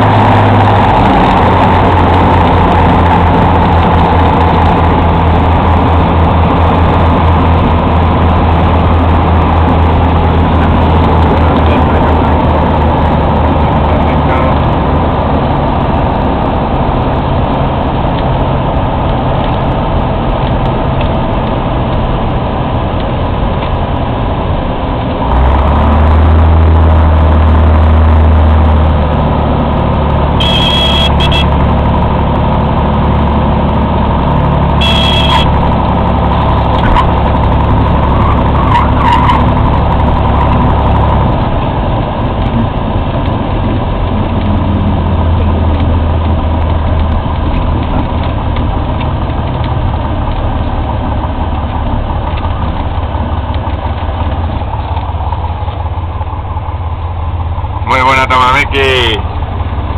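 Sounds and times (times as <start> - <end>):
short high beeps: 30.4 - 31.5, 34.8 - 35.6
aircraft engine and propeller drone: 39.6 - 59.9.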